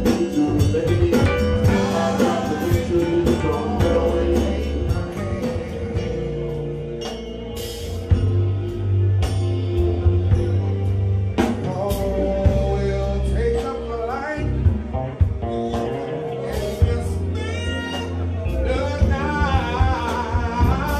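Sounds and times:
man singing into microphone: 0.0s - 6.7s, 11.6s - 14.8s, 16.2s - 20.9s
live band playing: 0.0s - 20.9s.

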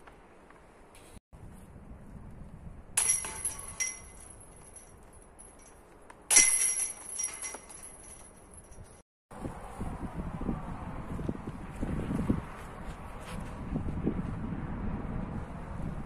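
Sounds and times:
disc golf basket chains jangling: 3.0s - 9.0s.

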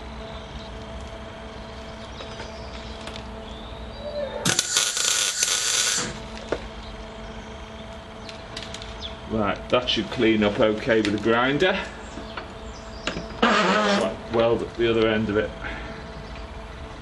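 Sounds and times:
low steady hum: 0.0s - 17.0s
welding arc sizzling and crackling: 4.4s - 7.1s, 13.4s - 15.5s.

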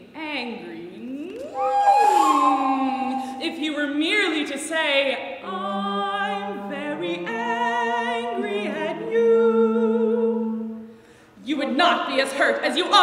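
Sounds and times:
soprano singing with vibrato: 0.8s - 10.9s
flute: 1.3s - 3.4s.

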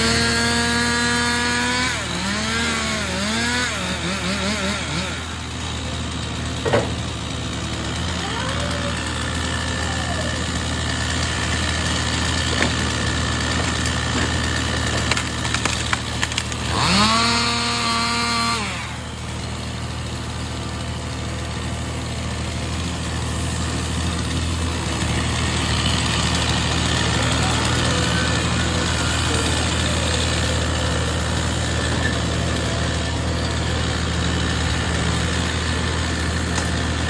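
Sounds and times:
engine revving: 0.0s - 19.2s, 22.8s - 37.0s
truck engine running: 0.0s - 37.0s
branches cracking and snapping: 11.0s - 18.4s, 36.3s - 37.0s.

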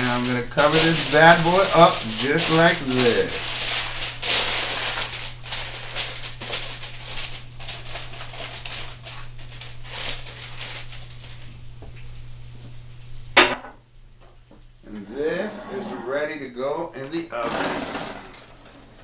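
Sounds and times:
aluminium foil crinkling: 0.0s - 12.3s.

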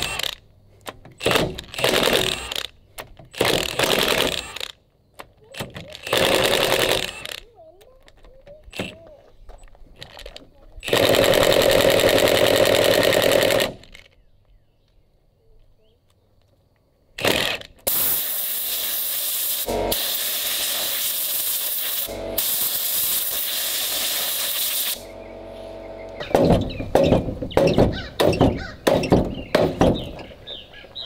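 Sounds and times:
impact driver hammering bolts: 0.0s - 14.1s, 26.2s - 30.4s.

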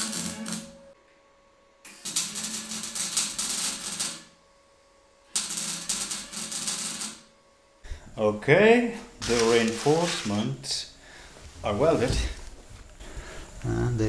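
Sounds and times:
arc welding crackling: 0.0s - 0.8s, 1.9s - 4.4s, 5.3s - 7.3s, 9.2s - 10.5s.

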